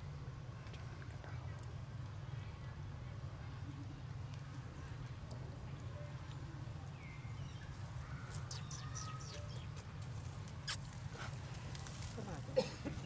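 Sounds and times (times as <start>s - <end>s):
animal rustling through leaves: 10.0s - 13.0s.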